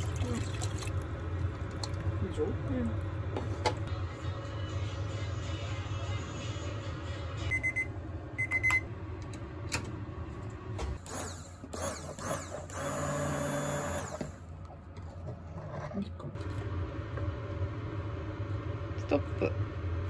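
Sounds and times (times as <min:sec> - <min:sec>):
immersion blender whirring in soup: 0:11.0 - 0:14.4.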